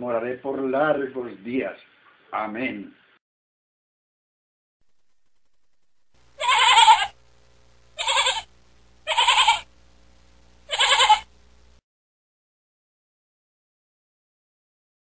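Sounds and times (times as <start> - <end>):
sheep bleating: 6.4 - 7.2, 8.0 - 9.7, 10.7 - 11.3.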